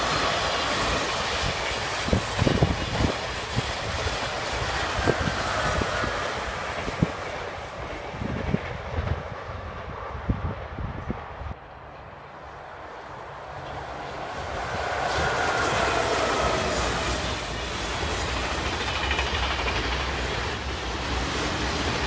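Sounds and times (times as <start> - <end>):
train running noise: 0.0 - 22.0
train wheels knocking over rail joints: 15.8 - 21.0.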